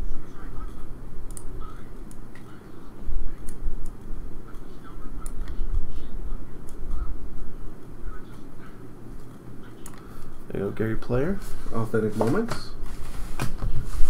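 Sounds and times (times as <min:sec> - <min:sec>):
light ticks and clicks: 0:01.3 - 0:02.5.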